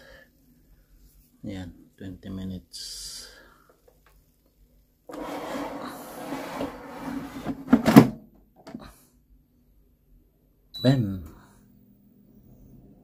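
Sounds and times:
drawer shutting clunk: 5.1s - 8.2s
plastic drawer scraping: 5.1s - 8.2s.

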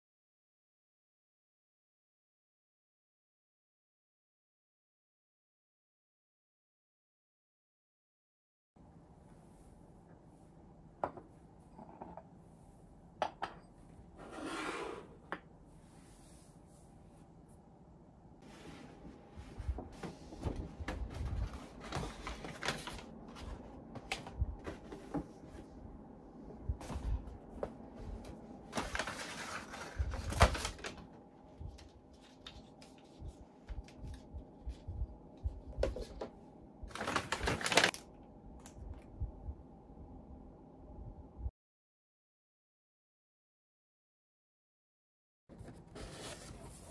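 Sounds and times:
paper rustling and crinkling: 19.6s - 25.2s, 26.8s - 34.8s, 36.9s - 38.1s, 45.5s - 46.9s.

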